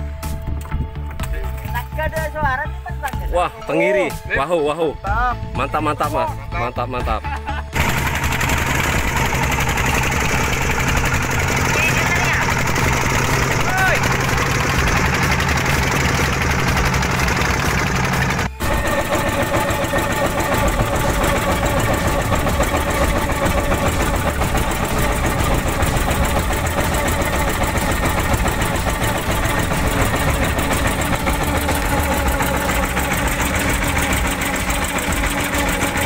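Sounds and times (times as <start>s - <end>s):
boat engine knocking: 7.6s - 36.0s.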